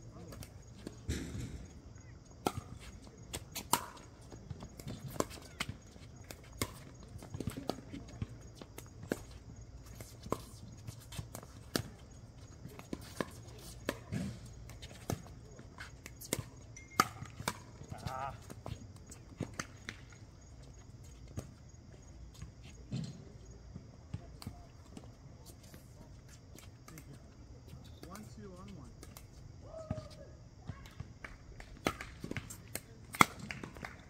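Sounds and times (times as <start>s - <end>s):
paddles striking pickleball: 16.0s - 20.1s, 31.2s - 34.0s.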